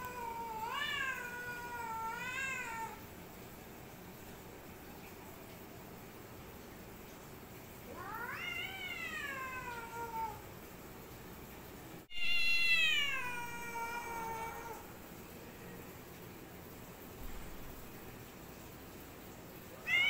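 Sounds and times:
cat yowling: 0.0s - 3.0s, 7.9s - 10.4s, 12.1s - 14.9s.

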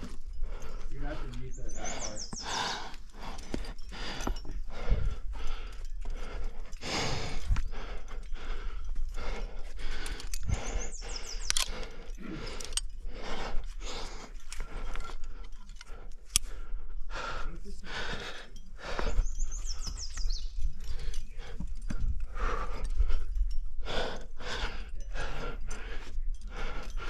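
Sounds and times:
person breathing hard: 0.0s - 27.0s
sharp clicks: 9.9s - 12.9s.

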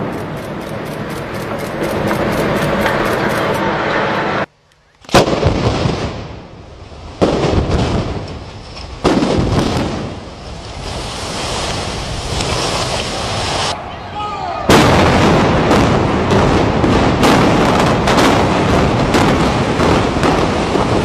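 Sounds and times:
explosive blasts: 5.1s - 11.4s, 14.7s - 21.0s
building collapsing rumble: 14.7s - 21.0s.

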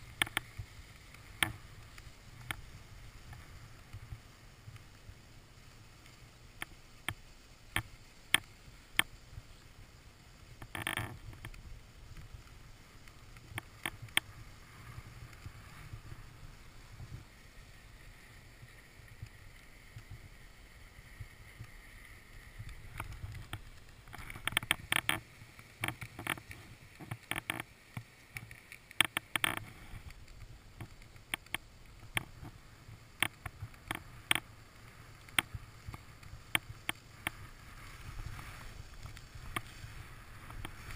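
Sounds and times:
ski scrape: 0.0s - 40.9s
skis hissing on snow: 0.0s - 40.9s
sharp clicks and knocks: 22.6s - 25.2s, 25.8s - 29.7s.

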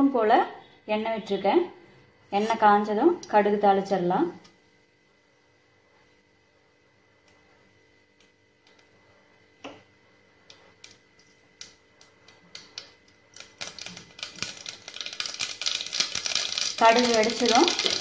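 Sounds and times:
hot oil crackling and popping: 10.4s - 18.0s.

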